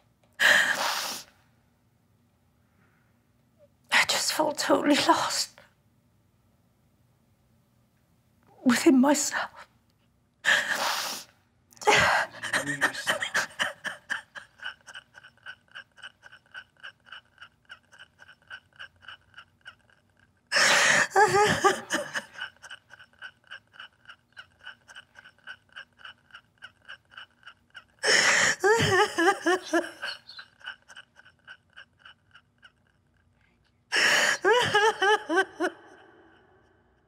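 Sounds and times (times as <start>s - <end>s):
woman sobbing: 11.8s - 37.0s.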